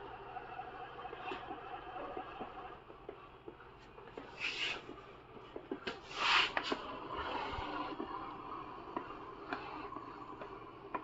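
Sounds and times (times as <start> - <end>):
hissing scrapes: 4.3 - 4.9, 6.0 - 8.0.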